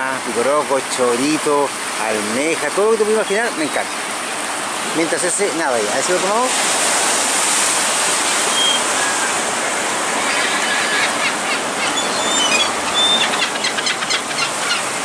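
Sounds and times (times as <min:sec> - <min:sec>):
sea water rushing along shore: 0:00.0 - 0:15.0
bird chirps and whistles: 0:08.5 - 0:09.3, 0:11.8 - 0:14.5.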